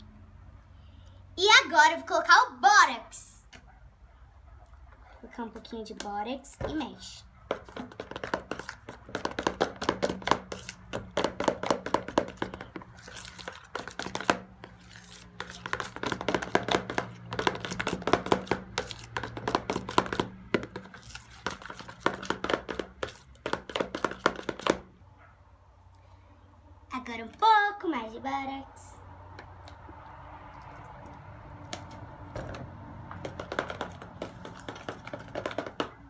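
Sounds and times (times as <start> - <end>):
spatula stirring slime: 5.2 - 24.9, 29.4 - 36.0.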